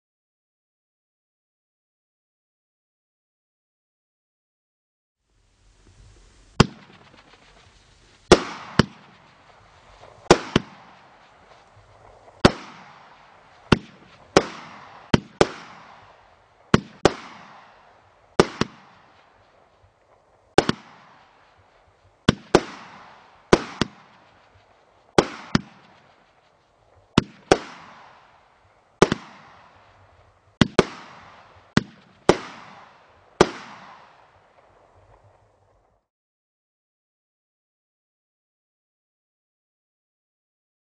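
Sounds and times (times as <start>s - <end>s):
firework shots banging: 6.4s - 35.3s.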